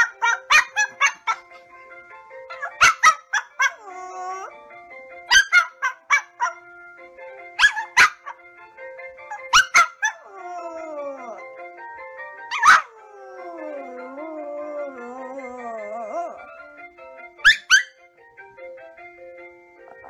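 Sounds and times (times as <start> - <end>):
small dog barking: 0.0 - 1.4, 2.5 - 3.8, 5.3 - 6.6, 7.6 - 8.4, 9.3 - 10.2, 12.5 - 12.9, 17.4 - 18.0
background music: 0.0 - 20.0
dog howling: 2.6 - 4.6, 9.3 - 11.6, 12.5 - 16.5.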